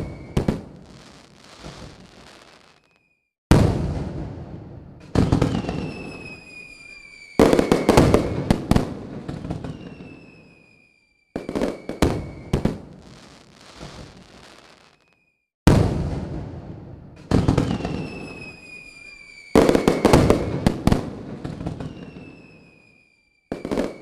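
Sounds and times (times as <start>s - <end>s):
fireworks bursting: 0.0s - 24.0s
high whistle falling in pitch: 5.5s - 8.6s, 9.3s - 12.6s, 17.6s - 20.7s, 21.5s - 23.8s.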